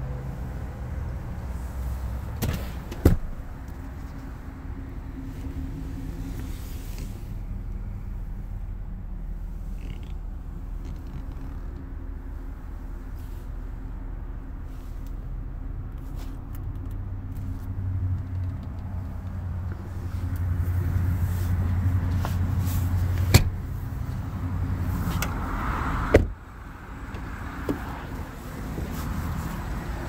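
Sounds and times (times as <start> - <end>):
low rumble and handling noise: 0.0 - 25.5, 26.1 - 30.0
car door slamming shut: 2.4 - 3.4, 23.2 - 23.6, 26.1 - 26.4.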